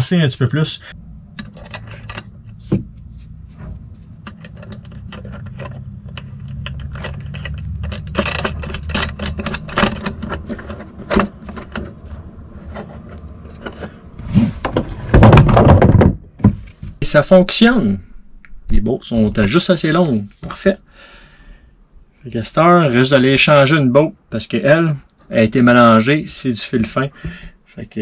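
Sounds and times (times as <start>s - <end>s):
low steady hum: 0.0s - 28.0s
nut spinning onto bolt: 4.2s - 11.9s
loud knocks: 14.6s - 16.6s.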